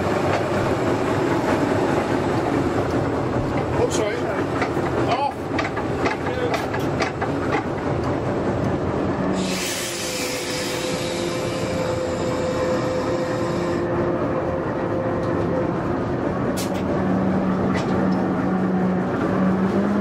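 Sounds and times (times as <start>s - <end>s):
diesel locomotive engine running: 0.0s - 20.0s
hiss: 9.3s - 13.8s.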